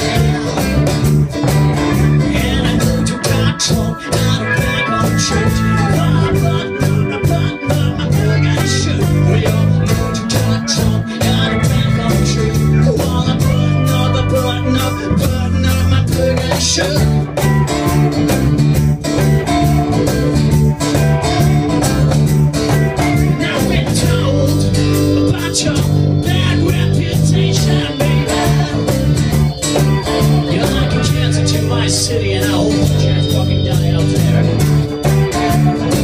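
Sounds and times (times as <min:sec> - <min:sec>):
live rock band playing: 0:00.0 - 0:36.0.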